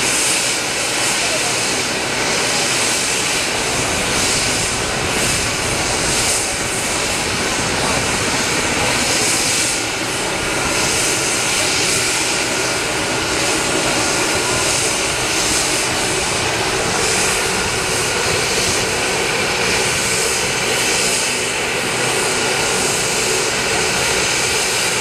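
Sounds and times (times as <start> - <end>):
helicopter turbine and rotor noise: 0.0 - 25.0.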